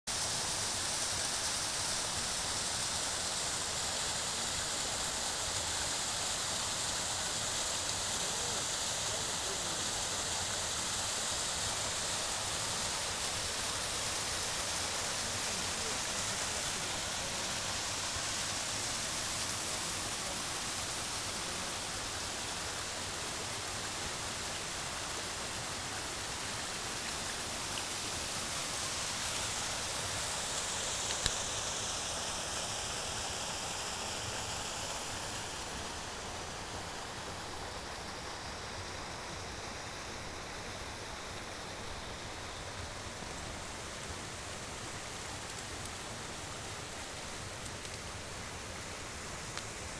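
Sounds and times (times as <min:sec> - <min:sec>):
waterfall and stream rushing: 0:00.1 - 0:49.9.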